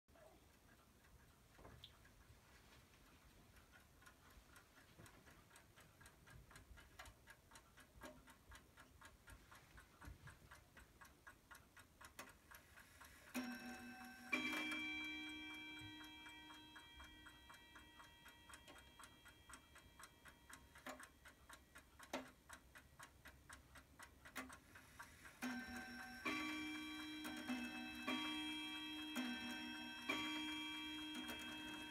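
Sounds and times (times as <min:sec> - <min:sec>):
clock ticking: 0:00.1 - 0:31.9
clock gong ringing: 0:13.4 - 0:17.9, 0:25.5 - 0:31.9.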